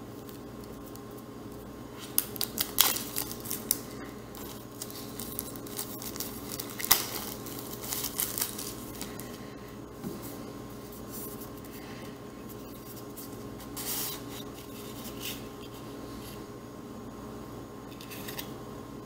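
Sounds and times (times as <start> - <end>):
plastic wrap crinkling and tearing: 1.9 - 9.4.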